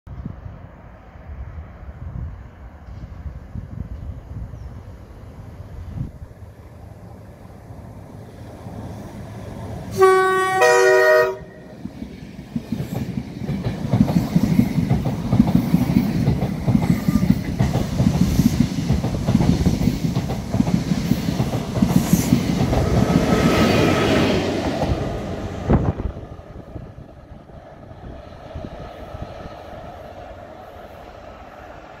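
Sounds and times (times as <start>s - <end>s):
train passing with wheels clattering: 0.1s - 32.0s
two-tone train horn: 9.9s - 11.8s.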